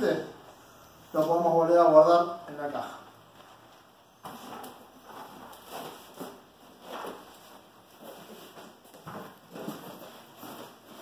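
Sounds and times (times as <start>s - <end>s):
fabric rustling against cardboard: 3.3s - 11.0s.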